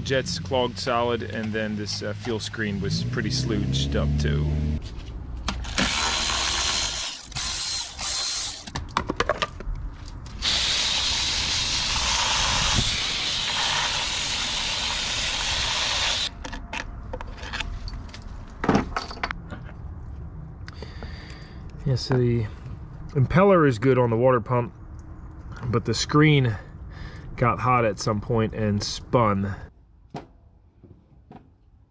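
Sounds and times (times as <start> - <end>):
power ratchet bursts: 5.6 - 8.7, 10.4 - 16.3
hose spray nozzle hissing: 10.4 - 16.3.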